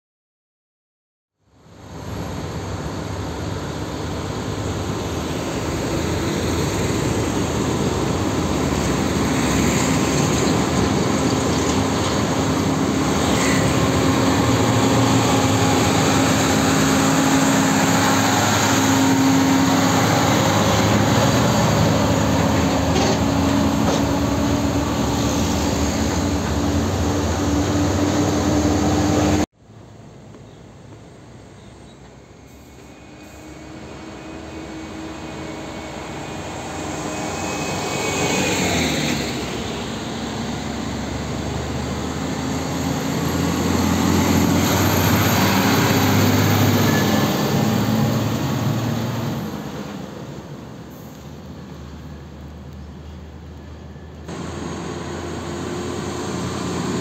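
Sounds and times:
distant traffic: 0:01.6 - 0:57.0
tyre and road noise: 0:01.8 - 0:57.0
truck diesel engine running: 0:02.3 - 0:29.4, 0:54.2 - 0:57.0.

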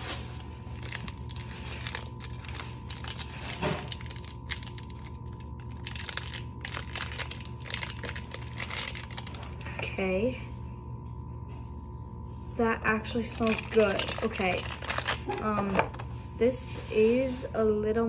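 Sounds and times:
plastic packaging crinkling: 0:00.0 - 0:09.9, 0:13.2 - 0:16.0.

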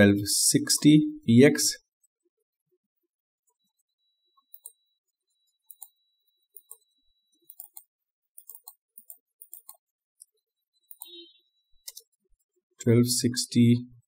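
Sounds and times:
keyboard and mouse clicks: 0:04.5 - 0:04.8, 0:05.7 - 0:06.8, 0:07.4 - 0:11.2, 0:11.8 - 0:12.2.

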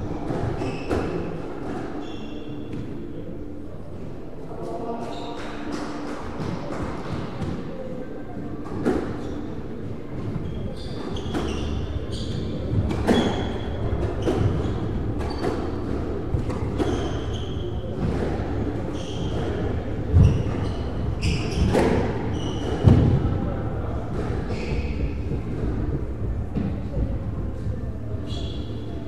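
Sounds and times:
shoes squeaking on wooden floor: 0:00.6 - 0:01.2, 0:10.4 - 0:23.2.

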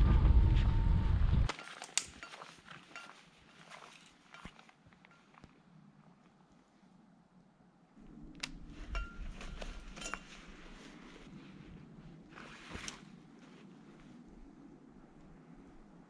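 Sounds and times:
backpack rustling in snow: 0:01.5 - 0:06.0, 0:08.7 - 0:14.6.

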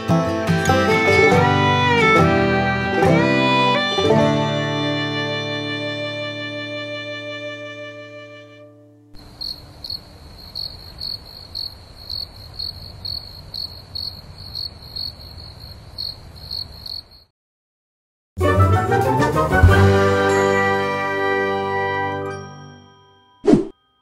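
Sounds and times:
music track: 0:00.0 - 0:09.1, 0:18.4 - 0:23.6
cricket chirping: 0:09.2 - 0:17.3.

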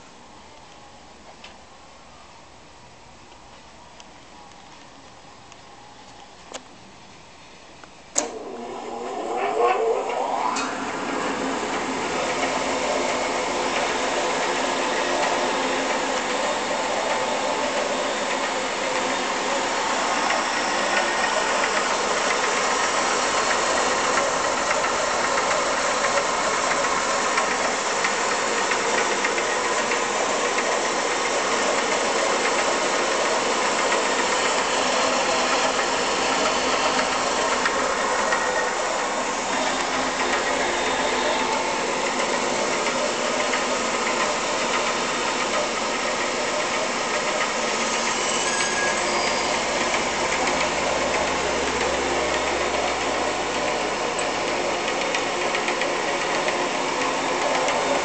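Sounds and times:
bandsaw running: 0:08.2 - 0:58.0.

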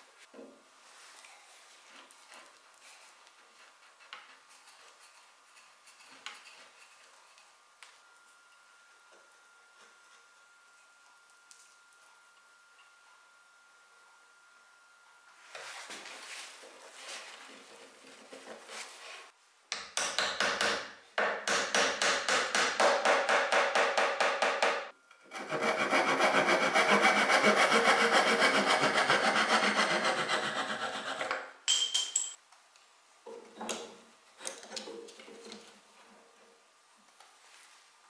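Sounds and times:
hammer tapping wooden dowels: 0:19.7 - 0:24.9.

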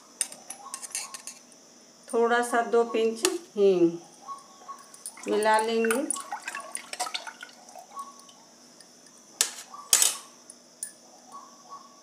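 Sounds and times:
spoon stirring water sloshing: 0:04.9 - 0:09.1.

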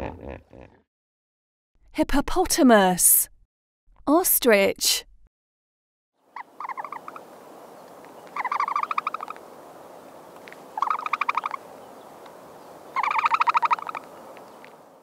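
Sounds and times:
background hiss: 0:06.6 - 0:15.0.

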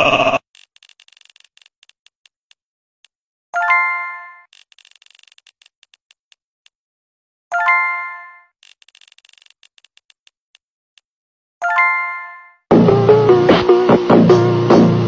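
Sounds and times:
spinner wheel ticking: 0:00.6 - 0:02.6, 0:08.6 - 0:10.6.

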